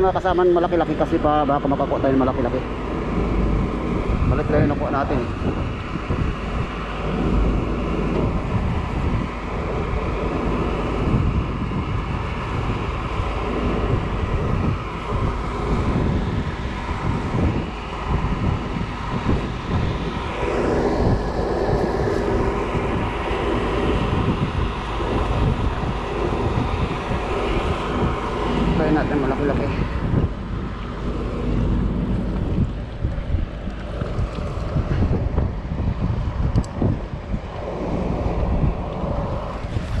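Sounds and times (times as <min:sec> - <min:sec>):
steady engine hum: 0:00.0 - 0:40.0
wind rumbling on microphone: 0:00.0 - 0:40.0.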